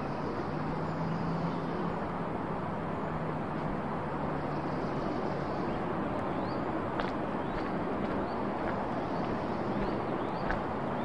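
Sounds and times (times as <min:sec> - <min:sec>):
steady rushing noise: 0:00.0 - 0:11.0
bird chirping: 0:07.4 - 0:11.0.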